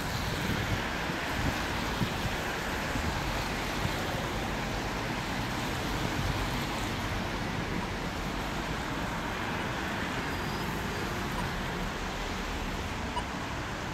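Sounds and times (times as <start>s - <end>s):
car tyres on wet road: 0.0s - 13.9s
steady background noise: 0.0s - 13.9s.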